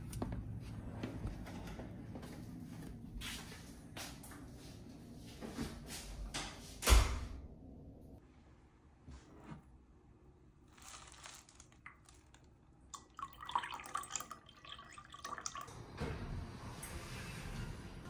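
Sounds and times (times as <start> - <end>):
water pouring into a teacup: 11.8 - 15.7.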